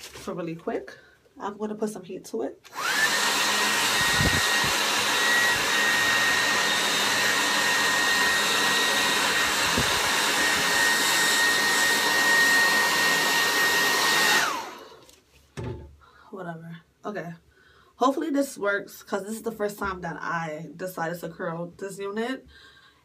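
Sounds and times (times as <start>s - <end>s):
hair dryer running: 2.6s - 15.2s.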